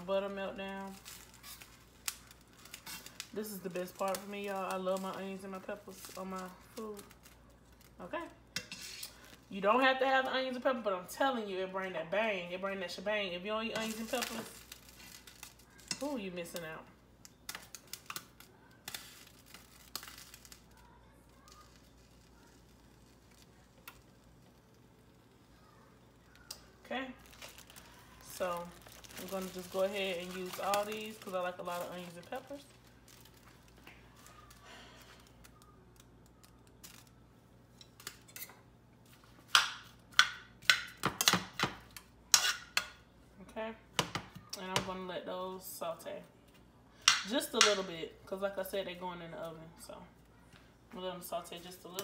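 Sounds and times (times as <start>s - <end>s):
plastic bag crinkling: 0.0s - 9.6s, 13.7s - 24.6s, 26.3s - 38.3s.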